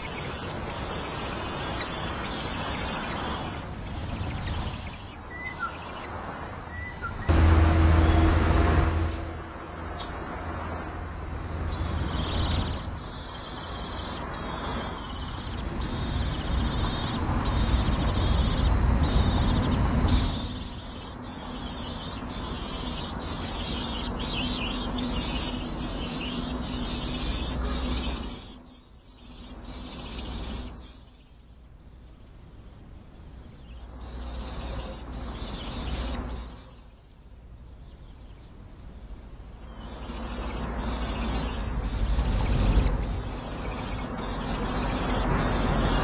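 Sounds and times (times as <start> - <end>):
birds chirping: 0.0 - 46.0
high insect drone: 0.0 - 46.0
broad rushing noise: 6.1 - 28.7, 39.3 - 46.0
low rumble: 7.1 - 13.3.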